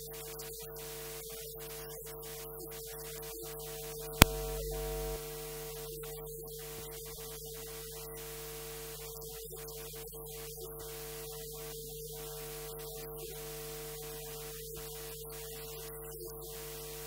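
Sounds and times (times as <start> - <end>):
electrical hum and hiss: 3.7 - 7.1
sharp click: 4.2 - 5.2.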